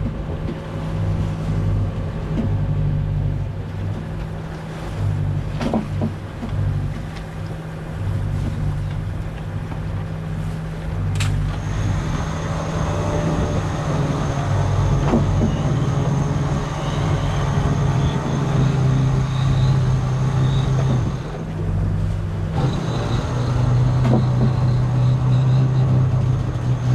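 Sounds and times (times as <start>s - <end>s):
boat engine humming: 0.0s - 26.9s
sharp click: 11.2s - 11.5s.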